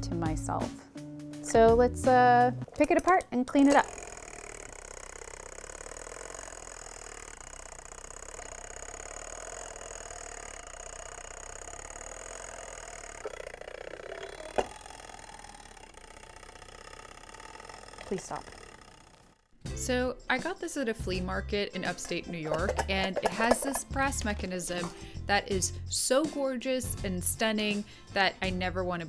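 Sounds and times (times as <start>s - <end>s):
fire alarm mechanism whirring: 3.6s - 19.6s.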